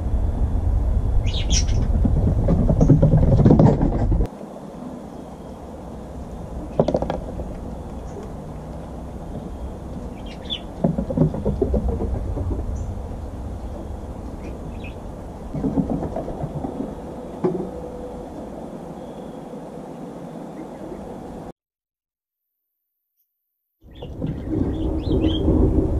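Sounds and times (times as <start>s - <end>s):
steady low rumble: 0.0s - 21.5s, 23.9s - 25.9s
acorns knocking on wooden boards: 6.8s - 7.4s, 10.8s - 12.7s.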